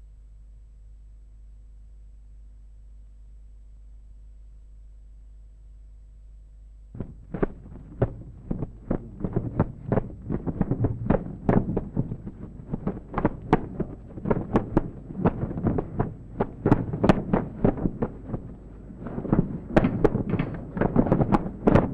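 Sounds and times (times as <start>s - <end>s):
low steady hum: 0.0s - 21.9s
dull thumps and knocks: 7.0s - 21.9s.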